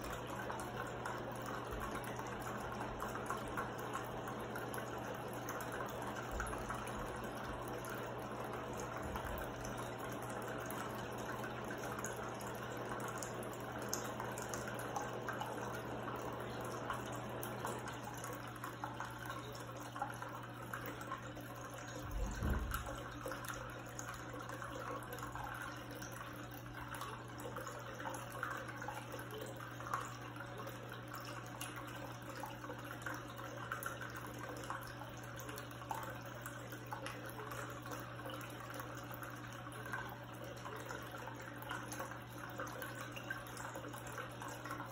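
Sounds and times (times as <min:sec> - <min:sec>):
pump hum: 0:00.0 - 0:44.9
water trickling and splashing: 0:00.0 - 0:44.9
low thump: 0:22.2 - 0:22.9.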